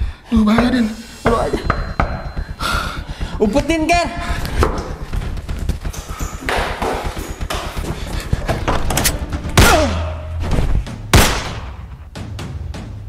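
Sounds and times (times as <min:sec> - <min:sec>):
low hum: 0:01.2 - 0:11.0.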